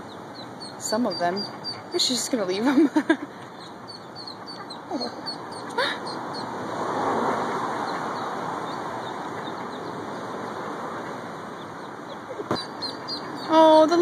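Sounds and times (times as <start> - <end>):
ducklings peeping: 0.0 - 6.6, 7.6 - 14.0
vehicle passing on road: 3.0 - 14.0.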